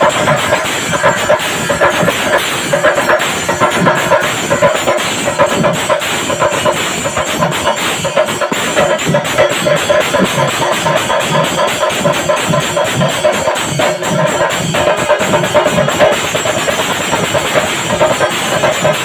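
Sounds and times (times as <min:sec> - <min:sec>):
steady pitched tone: 0:00.0 - 0:11.1
cymbals ringing: 0:00.0 - 0:19.0
drums beaten fast: 0:00.0 - 0:19.0.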